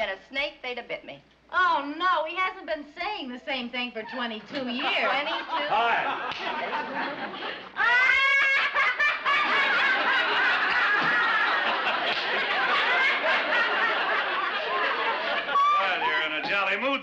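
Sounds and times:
women laughing: 0:04.1 - 0:16.6
studio audience laughing: 0:04.6 - 0:17.0.

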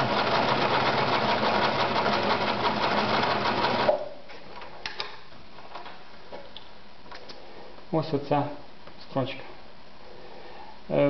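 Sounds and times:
sewing machine stitching: 0:00.0 - 0:04.0.

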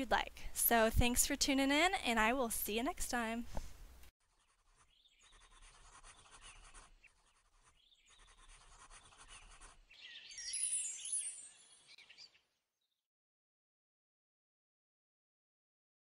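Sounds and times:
pencil scratching on paper: 0:04.2 - 0:10.0
high sound with falling tones: 0:10.3 - 0:11.9.

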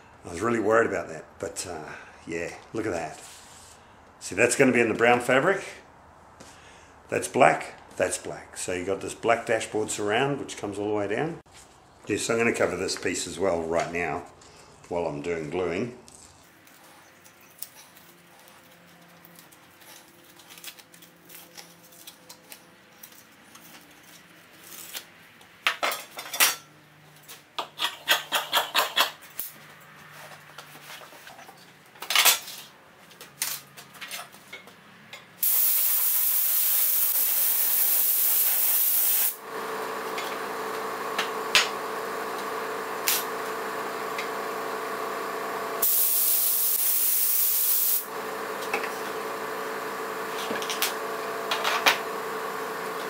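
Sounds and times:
clicks and rustles of parts: 0:16.0 - 0:35.4
spray glue gun hissing: 0:35.4 - 0:39.4, 0:45.8 - 0:48.1
steady machine hum: 0:39.3 - 0:53.0.

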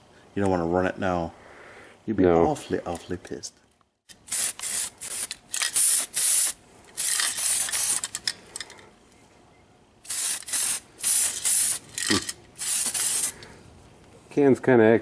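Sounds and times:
aerosol can spraying bursts: 0:04.2 - 0:08.0, 0:10.1 - 0:11.9, 0:12.6 - 0:13.4.

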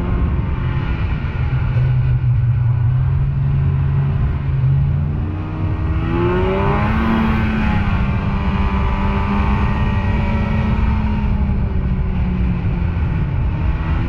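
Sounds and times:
snowmobile engine accelerating: 0:00.0 - 0:14.0.

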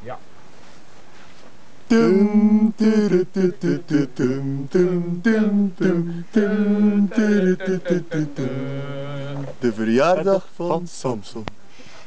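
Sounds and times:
voices singing unaccompanied: 0:01.9 - 0:10.2.

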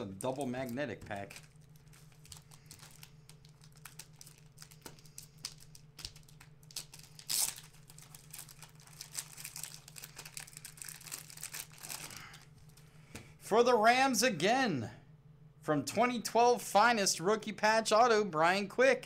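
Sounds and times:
cellophane wrapper crinkling: 0:00.0 - 0:12.8.

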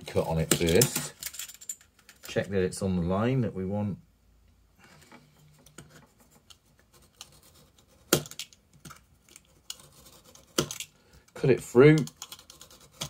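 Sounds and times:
craft knife scoring wood: 0:05.5 - 0:10.9, 0:12.0 - 0:13.0.

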